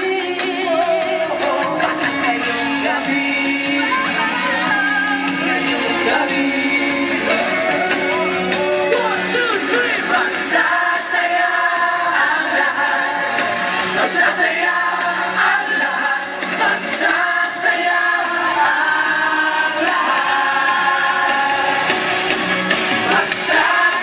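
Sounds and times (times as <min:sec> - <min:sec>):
amplified pop music: 0:00.0 - 0:24.0
people singing into microphones: 0:00.0 - 0:24.0.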